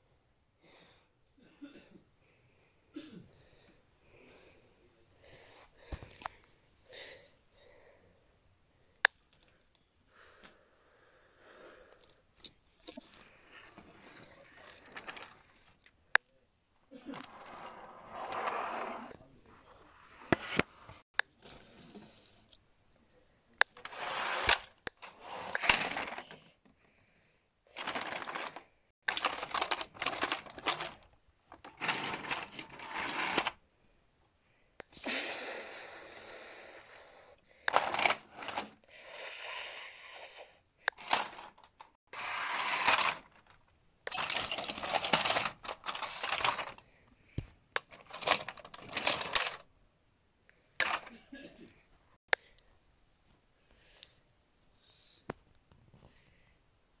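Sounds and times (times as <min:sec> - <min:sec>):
rustling and clattering handling noise: 0:12.4 - 0:16.0, 0:23.7 - 0:26.8, 0:27.7 - 0:33.6, 0:37.7 - 0:38.8, 0:40.9 - 0:49.7, 0:50.8 - 0:51.7.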